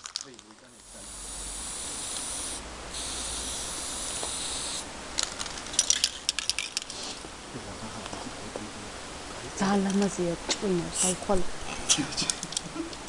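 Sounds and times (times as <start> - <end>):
spray can rattling when shaken: 0.0 - 7.1
spray can hissing: 0.7 - 4.9.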